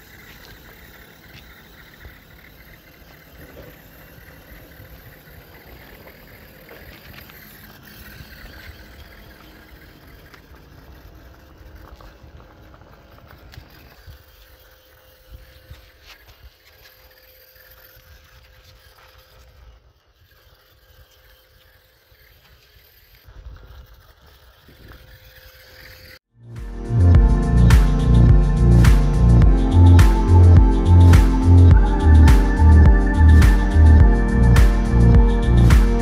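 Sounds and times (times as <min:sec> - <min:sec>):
rubber tyres rolling on concrete: 0:00.0 - 0:26.2
small electric gear motor whine: 0:00.0 - 0:36.0.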